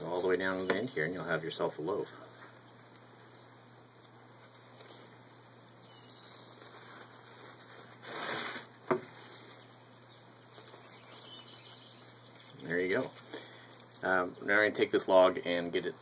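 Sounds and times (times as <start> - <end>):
plastic wrap rustling: 6.2 - 14.1.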